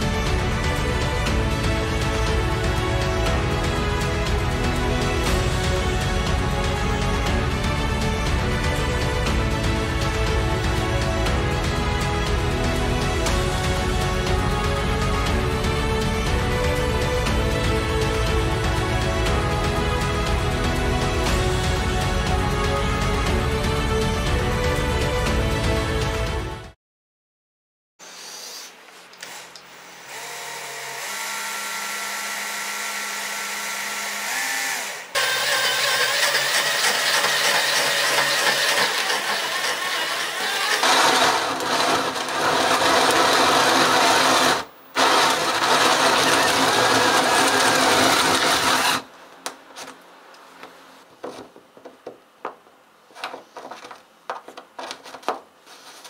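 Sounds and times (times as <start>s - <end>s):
cordless drill boring into wood: 29.2s - 49.0s.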